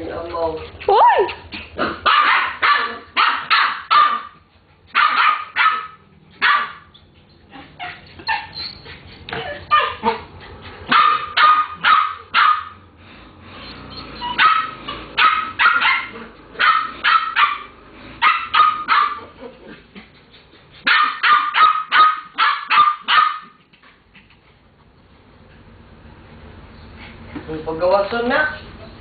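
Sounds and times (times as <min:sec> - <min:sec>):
small dogs barking: 0:00.9 - 0:08.6, 0:09.4 - 0:12.9, 0:14.0 - 0:19.8, 0:20.8 - 0:23.7.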